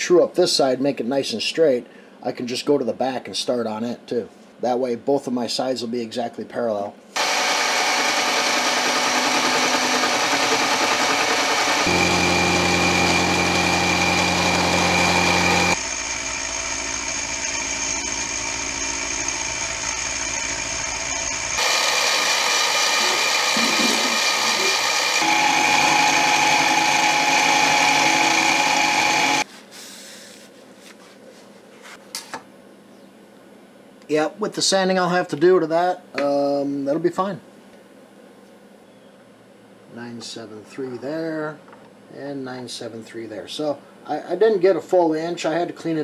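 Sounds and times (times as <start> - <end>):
milling machine motor whine: 7.2 - 29.4.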